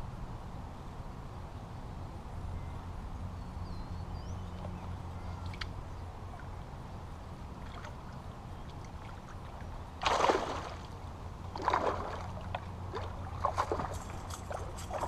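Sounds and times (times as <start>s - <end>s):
fish splashing at the surface: 10.0s - 15.0s.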